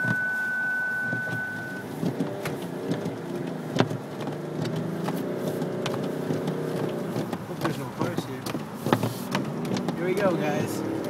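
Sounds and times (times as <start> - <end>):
steady high beep: 0.0 - 1.9
diesel engine running: 0.0 - 9.2.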